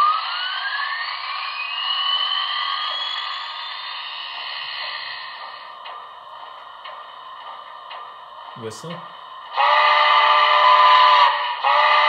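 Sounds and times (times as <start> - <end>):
rising whine: 0.0 - 9.5
model locomotive steam hiss: 9.5 - 12.0.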